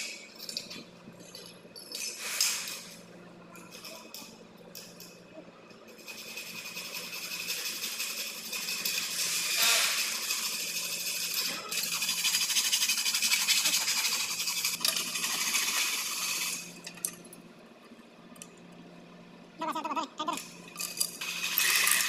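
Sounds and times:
hacksaw cutting metal: 9.2s - 10.4s.

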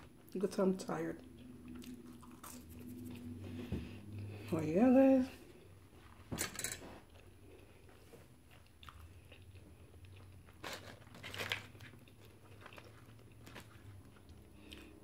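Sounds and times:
wet chewing of burger: 1.2s - 4.4s, 7.1s - 15.0s.

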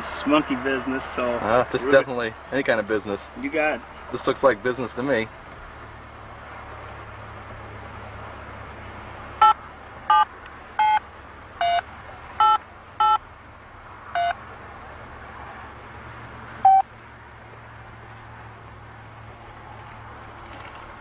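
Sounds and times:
touch-tone keypad beeps: 9.4s - 11.0s, 11.6s - 11.8s, 12.4s - 13.2s, 14.2s - 14.4s, 16.6s - 16.8s.

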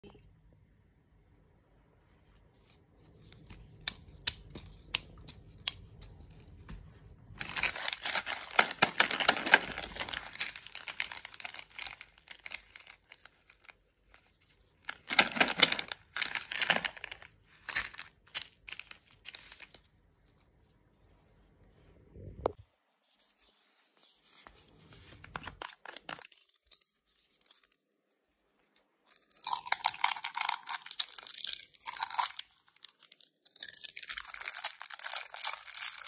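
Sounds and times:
plastic packaging crinkling: 7.4s - 19.9s, 25.2s - 27.9s, 28.6s - 36.0s.

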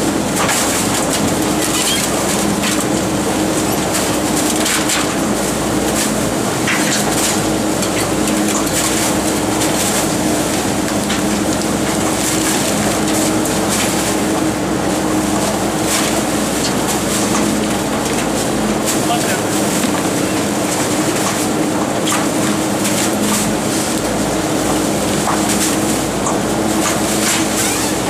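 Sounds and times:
garbage truck drum droning: 0.0s - 28.0s.

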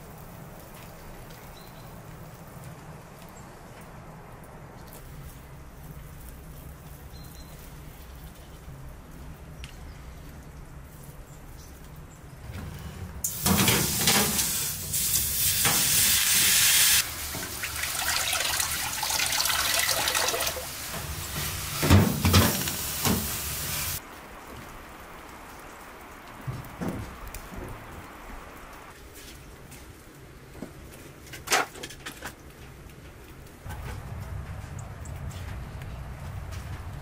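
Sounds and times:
water hissing in hot pan: 13.2s - 24.0s.

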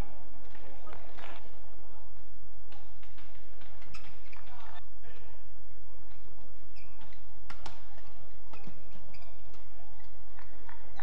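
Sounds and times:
indoor arena hum: 0.0s - 11.0s
shoes squeaking on court: 3.0s - 4.8s, 6.1s - 11.0s
racket hitting shuttlecock: 6.9s - 10.8s.

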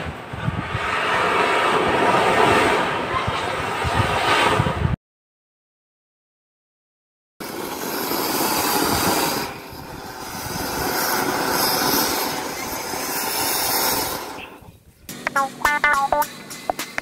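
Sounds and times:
firework fountain hissing: 7.4s - 15.6s, 16.3s - 17.0s.

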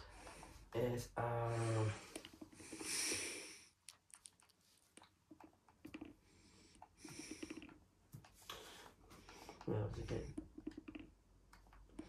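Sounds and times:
faint scattered clicks: 3.8s - 12.0s.

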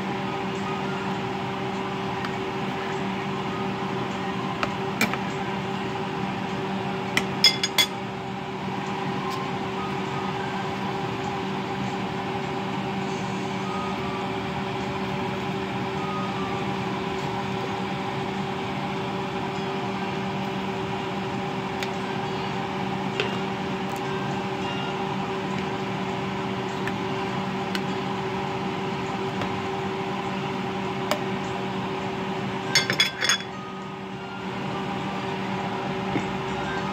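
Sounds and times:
kitchen machine hum: 0.0s - 36.9s
metal spoon clinking on pot: 7.4s - 8.0s, 32.8s - 33.5s.

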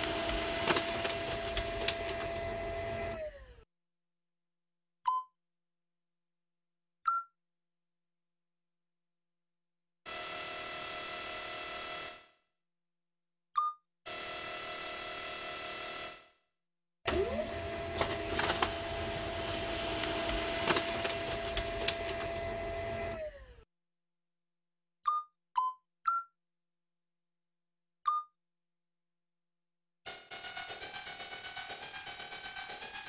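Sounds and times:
synthesized motor whirring: 0.0s - 3.6s, 17.1s - 23.6s, 30.1s - 33.0s.

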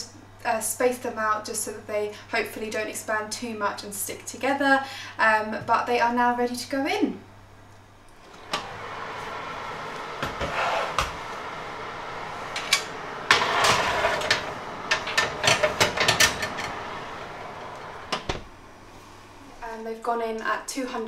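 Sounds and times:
oven fan whirring: 0.0s - 21.0s
oven door pulled open: 8.2s - 18.5s
metal baking tray clanking and scraping: 12.6s - 18.2s.

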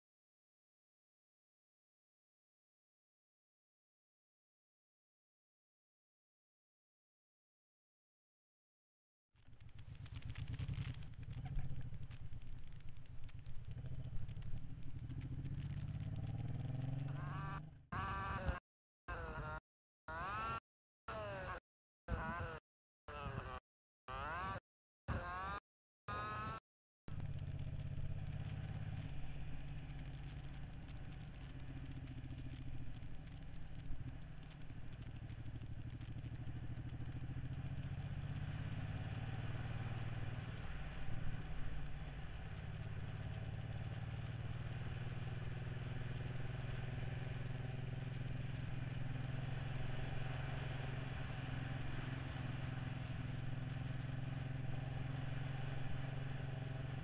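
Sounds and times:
motorcycle engine humming: 9.4s - 20.6s, 23.3s - 57.0s
wind and road noise: 9.5s - 17.8s, 27.1s - 57.0s.

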